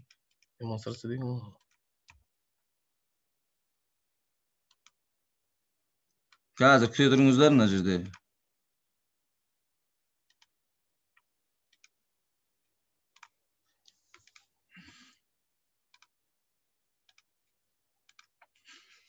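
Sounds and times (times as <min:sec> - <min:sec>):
computer mouse clicks: 0:00.0 - 0:02.3, 0:04.6 - 0:05.0, 0:10.2 - 0:12.0, 0:13.1 - 0:15.1, 0:15.9 - 0:16.2, 0:17.0 - 0:19.0.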